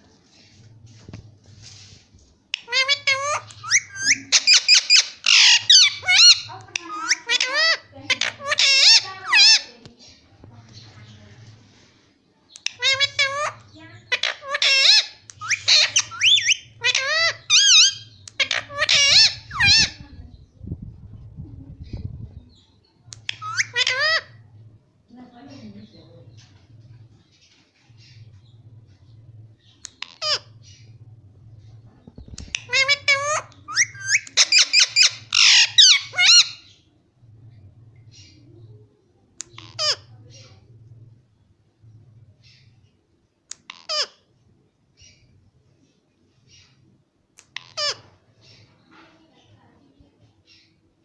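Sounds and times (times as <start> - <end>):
low steady hum: 0.0 - 51.0
parakeet squawking: 2.6 - 9.8, 12.6 - 20.1, 23.2 - 24.4, 29.6 - 31.0, 32.4 - 36.8, 39.4 - 40.4, 43.6 - 44.2, 47.4 - 48.6.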